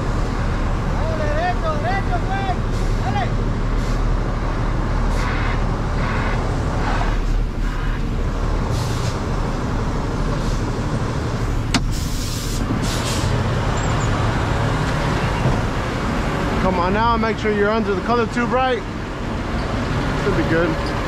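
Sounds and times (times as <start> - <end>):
diesel engine rumbling: 0.0 - 21.0
air hissing: 8.7 - 9.2, 11.7 - 13.4.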